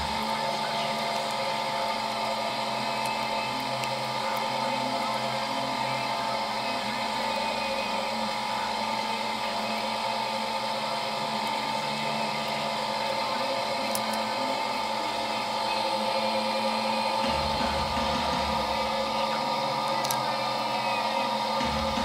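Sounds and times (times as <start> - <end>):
motor or fan humming: 0.0 - 22.0.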